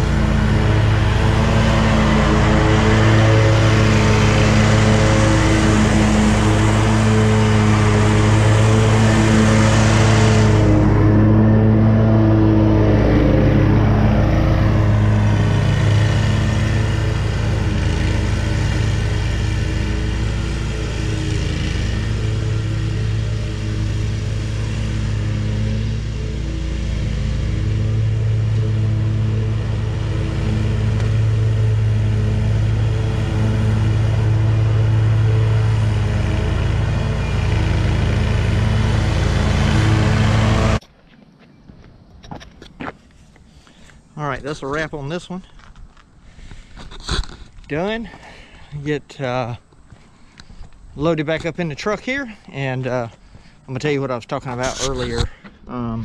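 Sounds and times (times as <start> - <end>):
mower engine running: 0.0 - 40.8.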